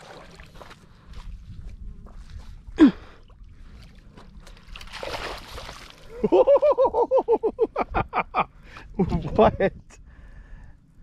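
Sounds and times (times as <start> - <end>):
fish splashing in water: 4.4 - 6.2.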